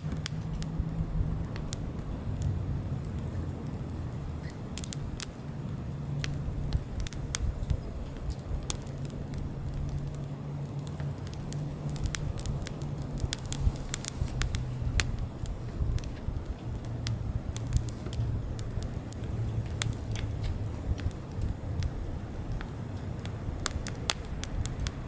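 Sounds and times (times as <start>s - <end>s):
fire crackling and popping: 0.0s - 25.0s
low steady rumble: 0.0s - 25.0s.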